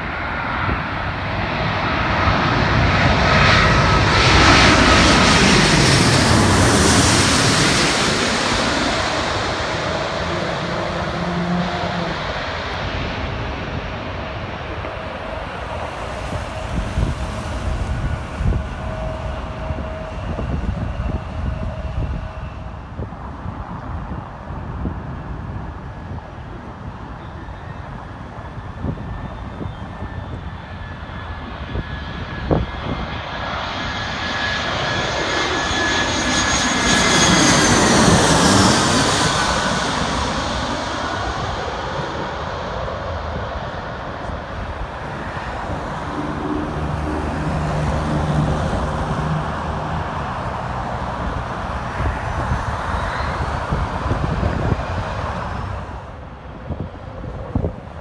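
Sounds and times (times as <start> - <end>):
jet engines whining and rumbling: 0.0 - 58.0
road vehicle passing: 4.8 - 13.6, 44.4 - 52.0.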